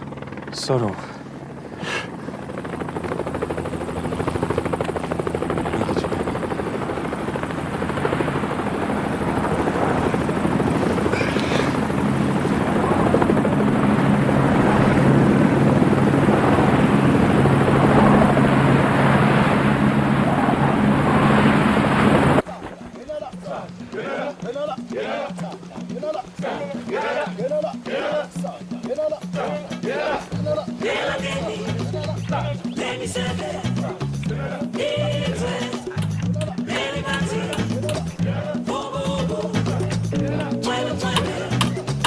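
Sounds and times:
mechanical drone with chopping beat: 0:22.7 - 0:42.0.

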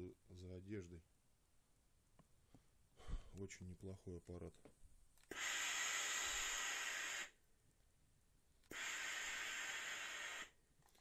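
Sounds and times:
steam iron hissing blasts: 0:05.3 - 0:07.4, 0:08.7 - 0:10.6.

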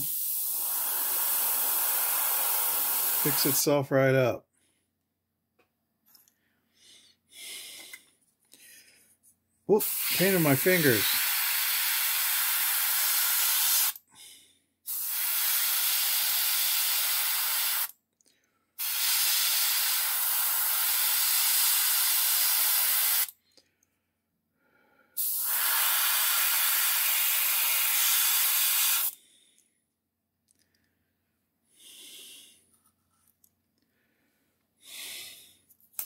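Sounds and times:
airbrush spraying hiss: 0:00.0 - 0:03.7, 0:09.8 - 0:14.0, 0:14.9 - 0:17.9, 0:18.8 - 0:23.3, 0:25.2 - 0:29.2.

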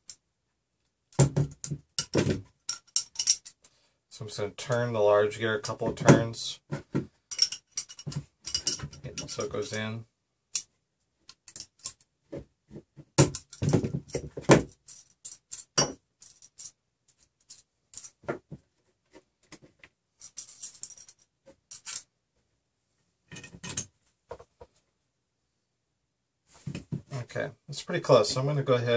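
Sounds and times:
plastic parts knocking together: 0:01.1 - 0:03.4, 0:11.4 - 0:14.9
metal wrench and hardware clinking: 0:02.0 - 0:03.6, 0:07.3 - 0:09.5, 0:14.7 - 0:16.8, 0:17.4 - 0:18.2, 0:20.2 - 0:22.1.

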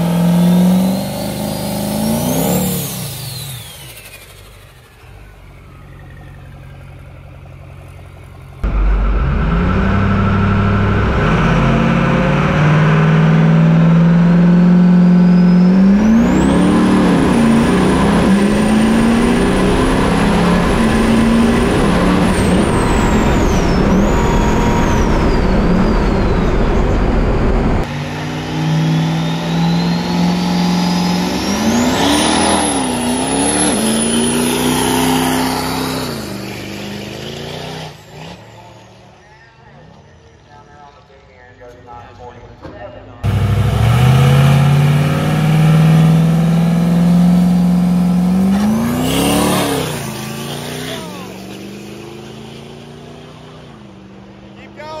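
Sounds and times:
diesel truck engine at full throttle: 0:00.0 - 0:40.9, 0:43.2 - 0:55.0
turbo whine whistling: 0:14.6 - 0:27.9.

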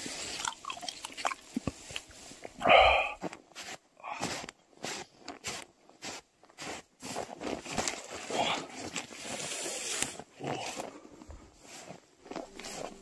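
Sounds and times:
footsteps crunching through snow: 0:00.0 - 0:13.0.

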